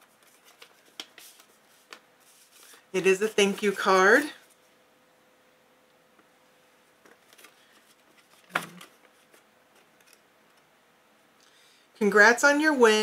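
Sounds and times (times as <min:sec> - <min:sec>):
paper card crinkling: 0:00.0 - 0:04.6, 0:07.0 - 0:10.2.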